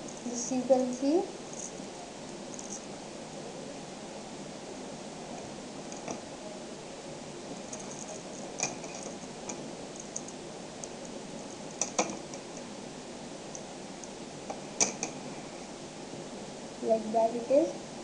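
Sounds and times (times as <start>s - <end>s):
magnetic balls clicking: 7.7s - 12.7s.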